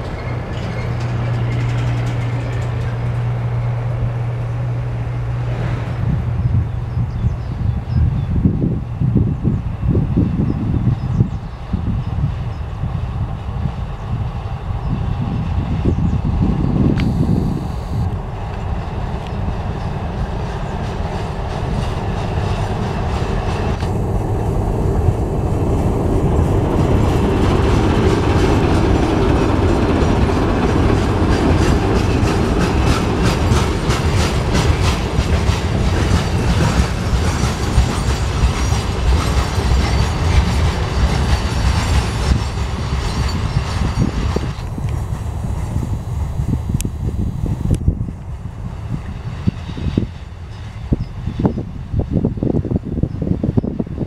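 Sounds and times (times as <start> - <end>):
train wheels clicking over rail joints: 0.0 - 5.0, 17.0 - 45.9
diesel locomotive engine rumbling: 0.0 - 54.0.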